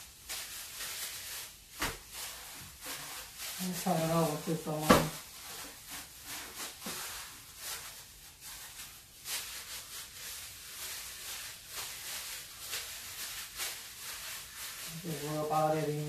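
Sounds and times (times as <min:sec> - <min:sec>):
glove rustling on meat: 0:00.0 - 0:16.0.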